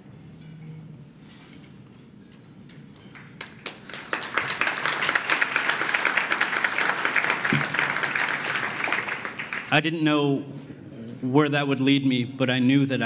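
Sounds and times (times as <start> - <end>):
audience applause: 3.1 - 9.8.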